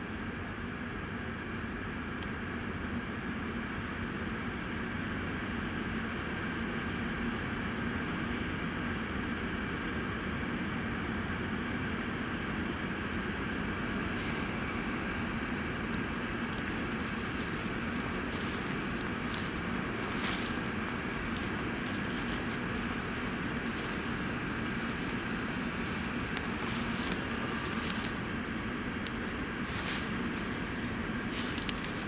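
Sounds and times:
low background hum: 0.0s - 32.0s
footsteps crunching dry grass: 16.6s - 32.0s.

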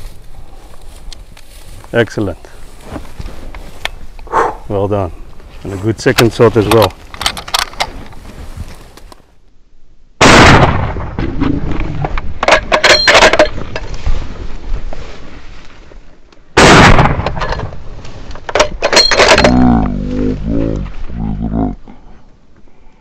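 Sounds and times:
rifle shots: 10.2s - 11.2s, 16.6s - 17.4s
rough low noise: 19.0s - 22.4s.

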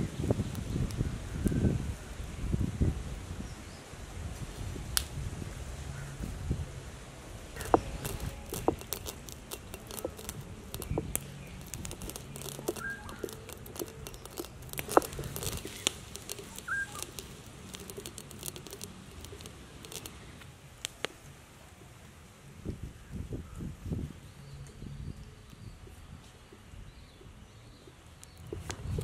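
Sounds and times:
stone roller crushing peppercorns: 7.5s - 20.4s, 28.1s - 29.0s
bird chirping: 7.6s - 20.4s.

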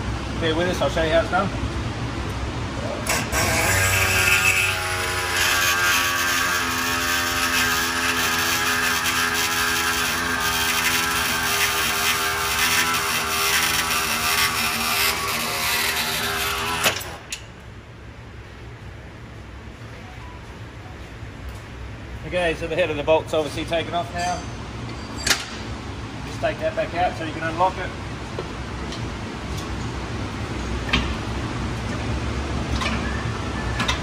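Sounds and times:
pneumatic air saw cutting metal: 3.0s - 17.4s.

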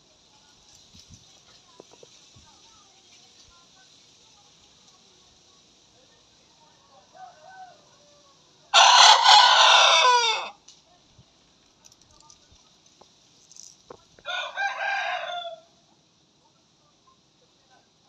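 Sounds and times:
young cockerels crowing: 7.1s - 10.6s, 14.2s - 15.8s.

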